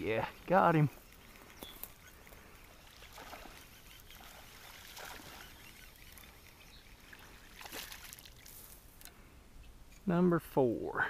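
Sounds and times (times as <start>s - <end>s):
trickling creek water: 0.0s - 9.2s
soft water splashes: 2.2s - 8.8s.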